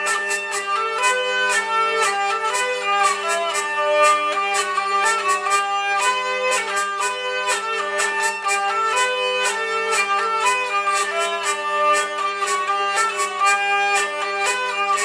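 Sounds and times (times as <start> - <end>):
hurdy-gurdy playing: 0.0 - 15.0.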